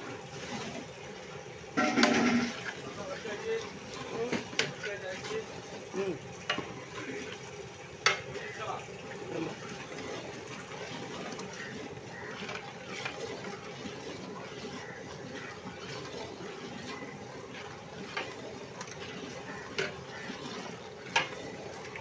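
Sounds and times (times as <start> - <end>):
ladle stirring thick stew: 0.0 - 22.0
ladle knocking against pot: 1.8 - 2.5.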